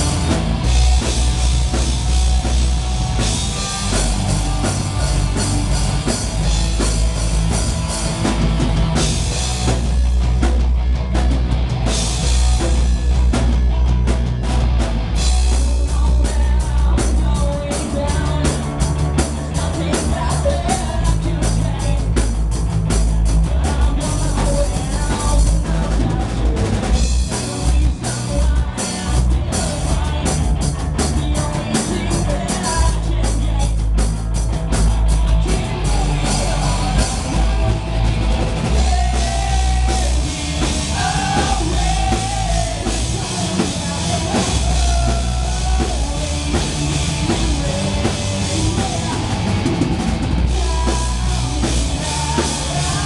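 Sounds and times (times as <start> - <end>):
bass guitar: 0.0 - 53.0
distorted electric guitars: 0.0 - 53.0
drum kit and cymbals: 0.0 - 53.0
singer's vocals: 15.3 - 53.0.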